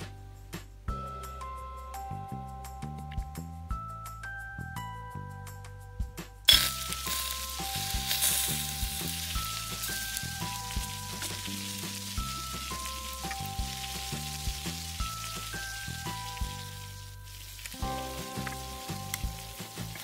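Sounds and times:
soft background music: 0.0s - 20.0s
batter sizzling in oil: 6.5s - 20.0s.

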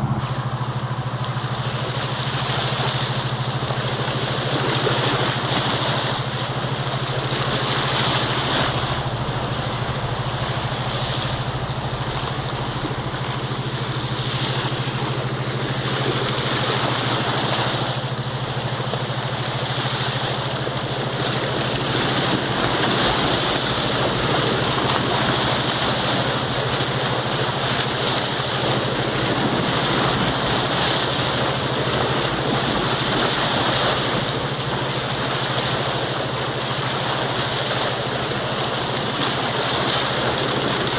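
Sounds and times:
wind buffeting microphone: 0.0s - 19.5s
small waves washing ashore: 0.0s - 40.9s
steady low hum: 0.0s - 40.9s.

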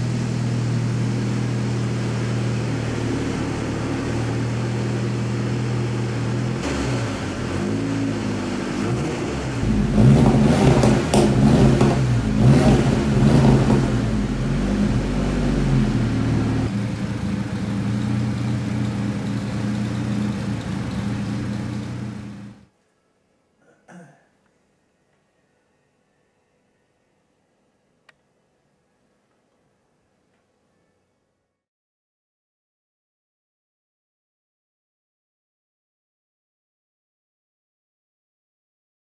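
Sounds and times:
car engine idling: 0.0s - 22.7s.

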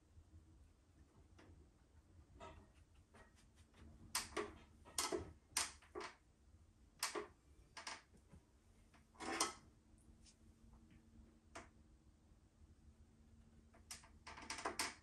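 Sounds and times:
paintbrush scraping and tapping: 2.4s - 4.7s.

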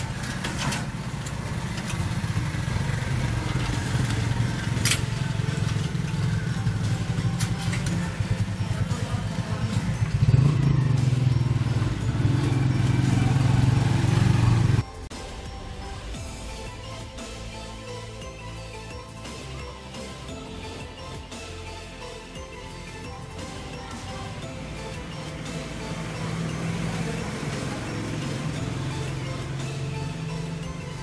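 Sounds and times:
small motorbike engine running: 0.0s - 14.8s, 23.4s - 31.0s
background music: 0.0s - 31.0s.

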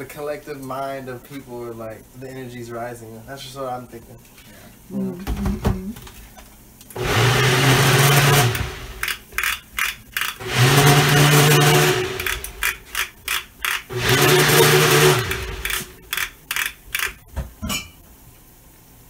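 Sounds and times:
electric blender motor: 7.0s - 9.1s, 10.4s - 12.9s, 13.8s - 16.1s.

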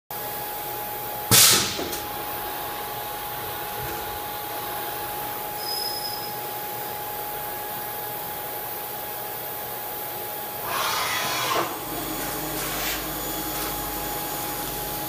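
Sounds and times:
machining center hissing: 10.6s - 15.0s.

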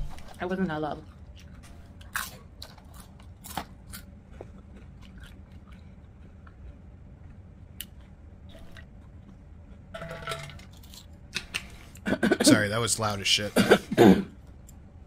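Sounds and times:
faint low hum: 0.0s - 15.0s
close chewing and lip-smacking: 1.0s - 9.9s.

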